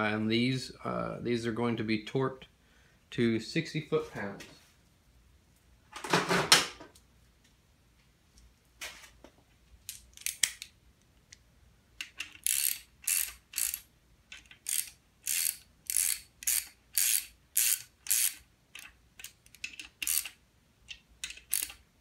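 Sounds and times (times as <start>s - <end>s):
ratchet pawl clicking: 12.2s - 20.4s, 21.2s - 21.8s.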